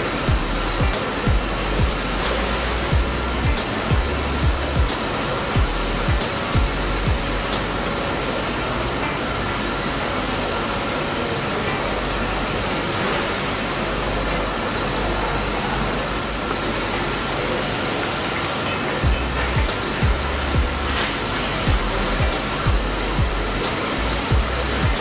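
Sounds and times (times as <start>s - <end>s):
low thumps: 0.3s - 5.0s, 5.6s - 7.7s.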